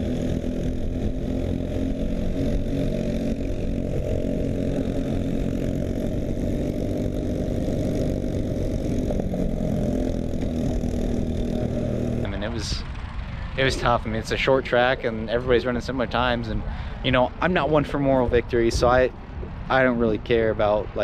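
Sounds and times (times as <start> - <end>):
kart engine running: 0.0 - 18.1.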